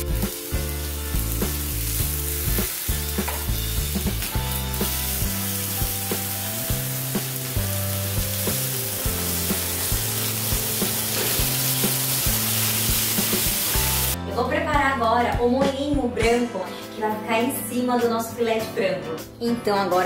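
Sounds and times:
chicken sizzling in a pan: 0.0 - 14.2.

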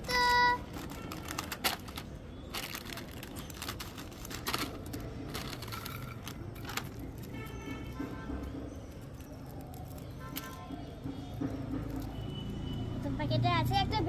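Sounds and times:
snack wrapper crinkling: 0.7 - 7.3, 9.0 - 10.6.

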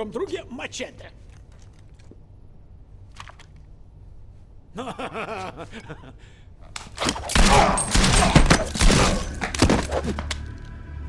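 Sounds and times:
rapid gunshots: 7.0 - 10.0.

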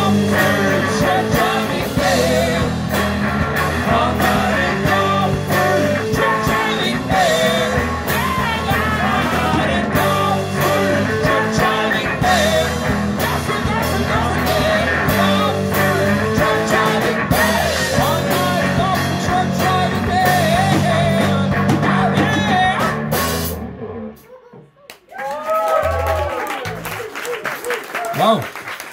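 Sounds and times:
person singing: 0.0 - 23.0
electric guitars: 0.0 - 24.2
drum kit: 0.0 - 24.6
bass guitar: 0.0 - 24.7.

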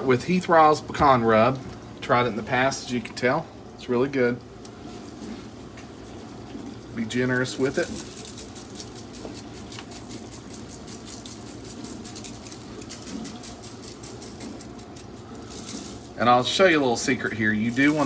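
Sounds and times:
spice rub rattling from shaker: 7.2 - 18.0.

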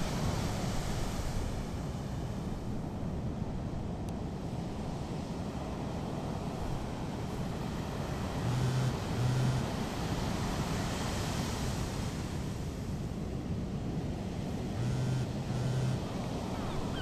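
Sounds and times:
wind: 0.0 - 17.0
mobile phone vibrating: 8.4 - 9.7, 14.8 - 16.1.

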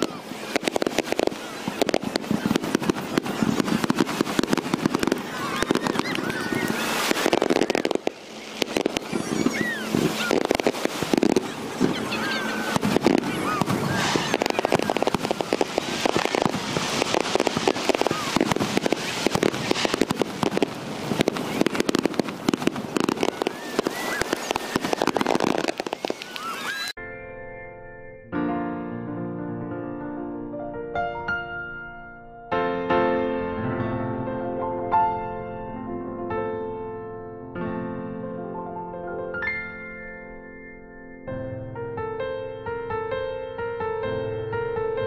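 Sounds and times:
fireworks crackling and banging: 0.0 - 27.0.

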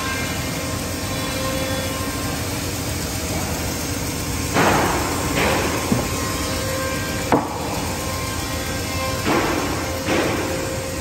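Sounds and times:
woodworking machinery humming: 0.0 - 11.0
heavy timber scraping knocks: 4.5 - 8.0.

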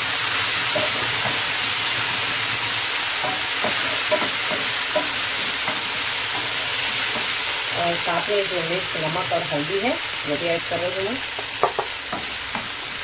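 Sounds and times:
food sizzling in frying pan: 0.0 - 13.0
spatula scraping and tapping: 3.2 - 7.4.

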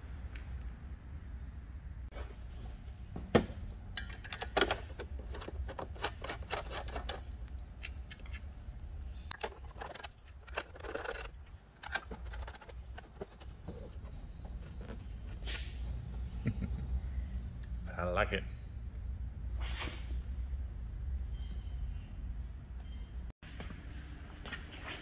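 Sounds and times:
metallic clicks and knocks: 3.9 - 8.5, 9.3 - 13.8.

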